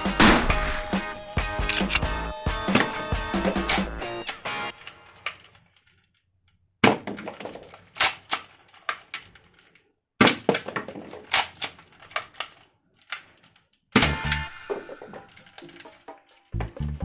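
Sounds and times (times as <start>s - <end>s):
plastic clicks of toy gun: 1.7s - 2.0s, 7.9s - 10.6s, 11.2s - 16.4s.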